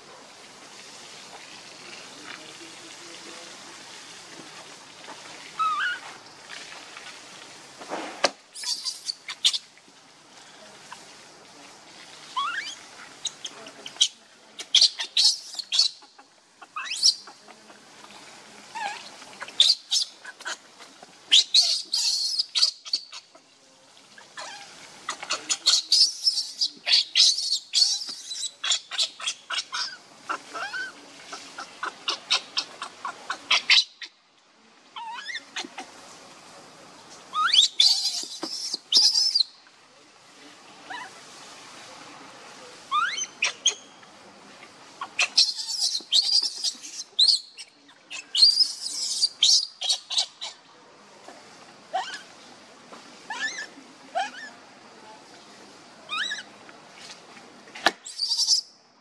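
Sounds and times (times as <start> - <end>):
baby monkey squealing and chirping: 5.6 - 6.0, 8.6 - 9.6, 12.4 - 17.3, 18.8 - 20.6, 21.3 - 23.3, 24.4 - 31.0, 31.6 - 34.2, 35.0 - 35.8, 37.3 - 39.5, 42.9 - 43.9, 45.0 - 50.6, 51.9 - 52.3, 53.3 - 54.5, 56.1 - 56.5, 57.8 - 58.7.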